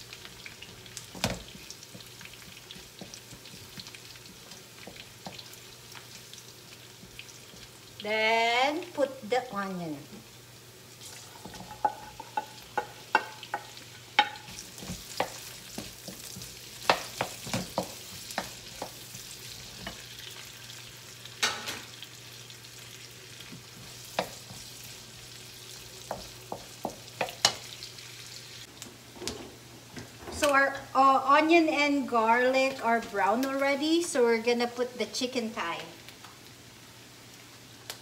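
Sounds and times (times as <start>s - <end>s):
onion sizzling in hot oil: 0.0s - 29.7s, 30.4s - 38.0s.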